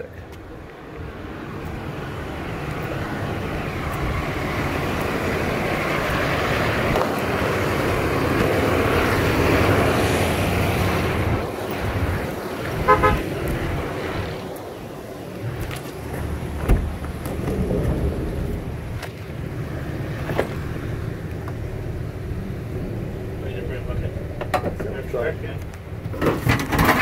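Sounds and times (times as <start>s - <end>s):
traffic noise: 0.0s - 27.0s
car horn toot: 12.8s - 13.3s.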